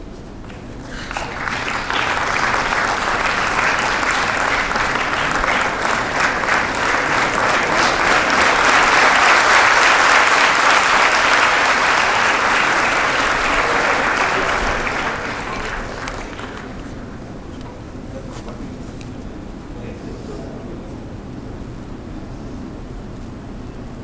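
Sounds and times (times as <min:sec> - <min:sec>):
audience applauding: 0:00.4 - 0:17.5.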